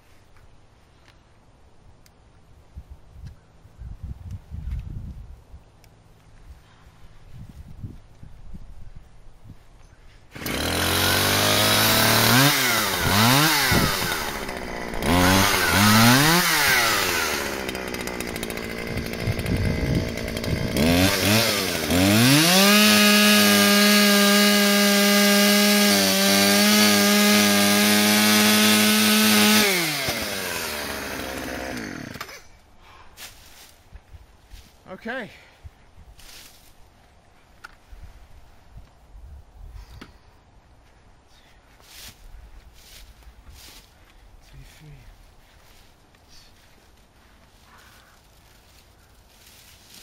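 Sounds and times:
chainsaw revving: 0:10.3 - 0:32.5.

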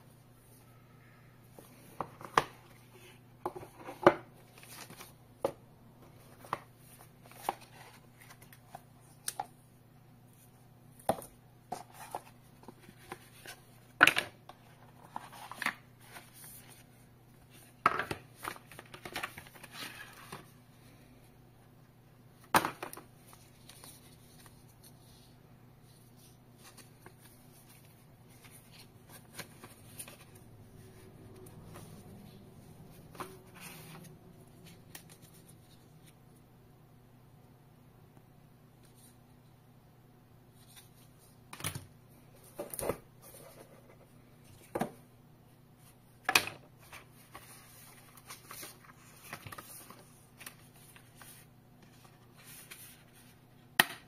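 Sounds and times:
paper rustling: 0:46.8 - 0:53.4.

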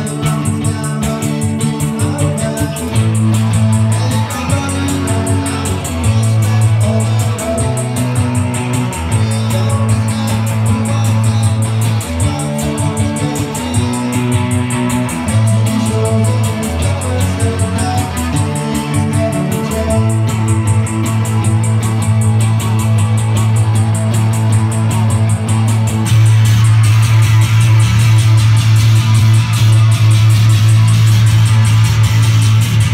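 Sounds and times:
electric guitar: 0:00.0 - 0:32.9
fast ticking beat: 0:00.0 - 0:32.9
low bass line: 0:00.0 - 0:32.9.

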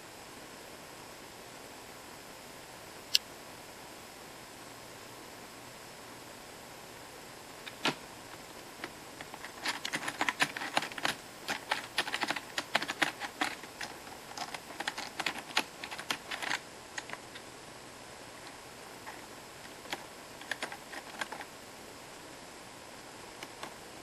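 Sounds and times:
computer keyboard keys clicking: 0:09.2 - 0:17.4, 0:19.0 - 0:21.5.

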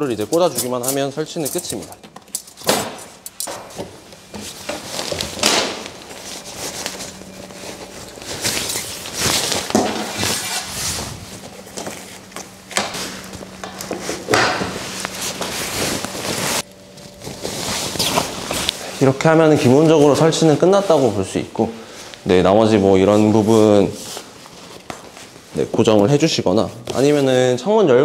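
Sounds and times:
tent fabric rustling: 0:04.4 - 0:22.0.

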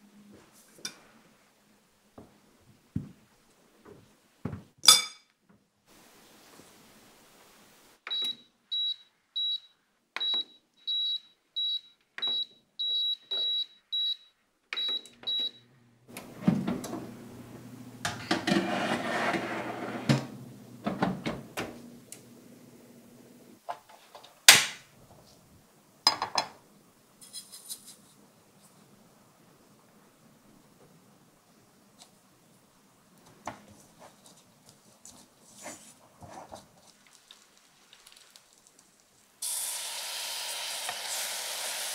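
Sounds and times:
control panel beeps: 0:08.1 - 0:15.6
fan humming: 0:15.5 - 0:23.6
oven door shutting: 0:16.1 - 0:22.3
sugar pouring into pan: 0:36.9 - 0:41.9.

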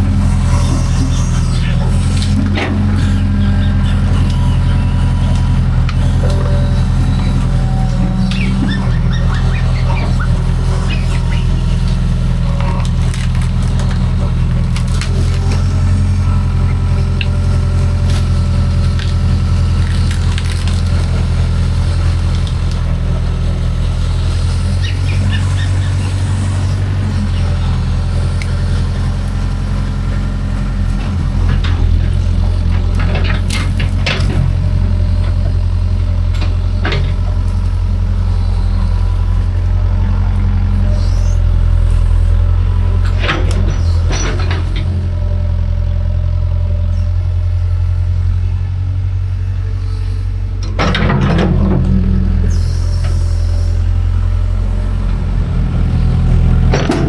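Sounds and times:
excavator diesel engine running: 0:00.0 - 0:57.0
wood cracking and splintering: 0:10.9 - 0:22.9.

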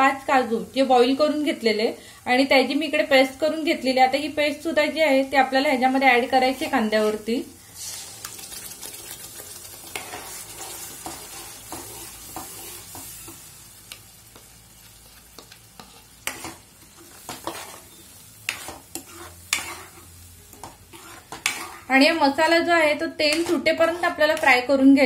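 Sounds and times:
paste sizzling in hot oil: 0:02.5 - 0:25.0
ladle scraping and knocking pan: 0:15.4 - 0:21.9.

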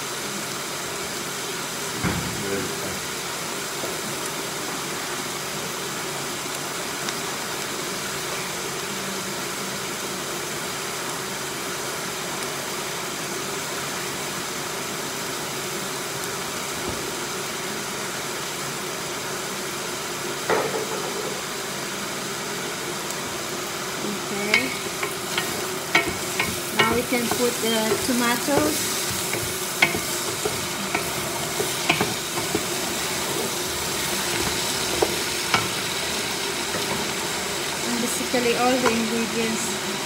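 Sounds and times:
food sizzling in a wok: 0:00.0 - 0:40.0
knock: 0:02.0 - 0:02.4, 0:20.5 - 0:21.4
kitchenware clinking: 0:24.5 - 0:37.6.

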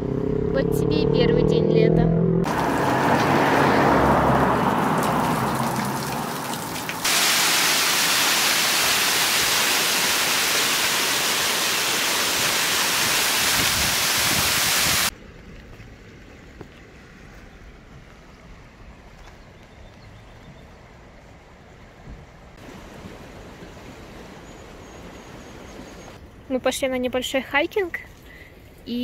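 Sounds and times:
waterfall rushing: 0:02.5 - 0:15.1, 0:22.6 - 0:24.4.

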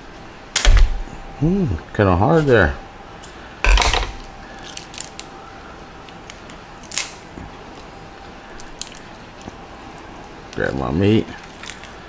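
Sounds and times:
steady low hiss: 0:00.0 - 0:12.0
lobster shell cracking by hand: 0:03.7 - 0:05.4, 0:06.0 - 0:07.9, 0:08.5 - 0:10.6, 0:11.4 - 0:12.0.

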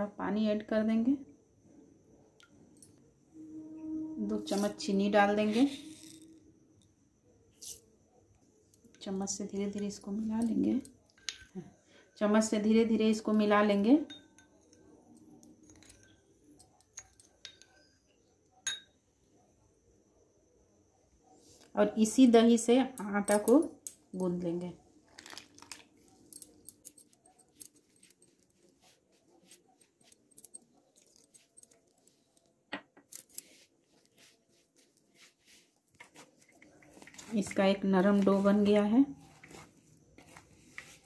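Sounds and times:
spoon scraping glass bowl: 0:03.8 - 0:06.4, 0:35.2 - 0:41.0
spoon clinking against glass: 0:10.4 - 0:11.6, 0:14.0 - 0:19.0.

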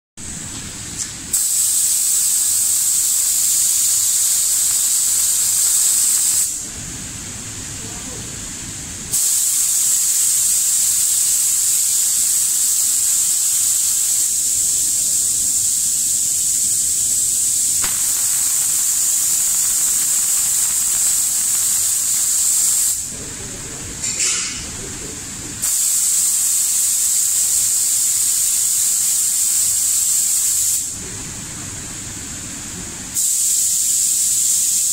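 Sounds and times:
spray guns hissing: 0:01.3 - 0:06.6, 0:09.1 - 0:23.1, 0:25.6 - 0:31.0, 0:33.2 - 0:34.9.

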